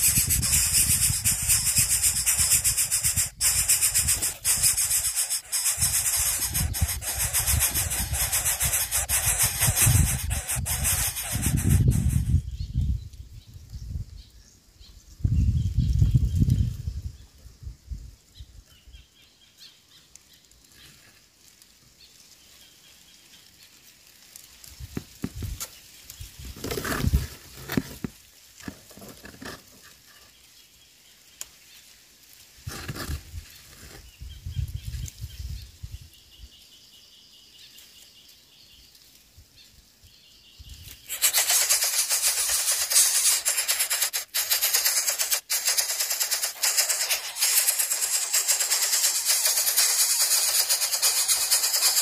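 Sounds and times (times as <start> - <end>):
dry grass rustling: 0.0 - 12.4, 41.0 - 52.0
wings flapping: 0.0 - 12.4, 41.1 - 52.0.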